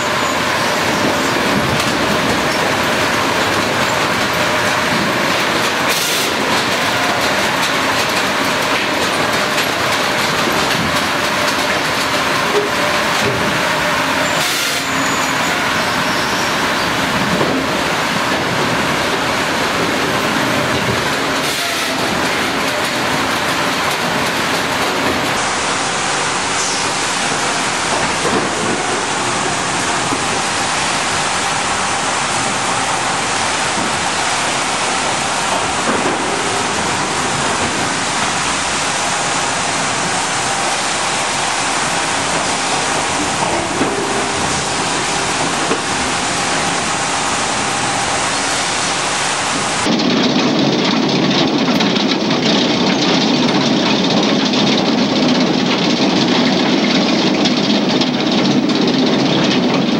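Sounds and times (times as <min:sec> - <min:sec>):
log machinery clattering: 0:00.0 - 0:59.9.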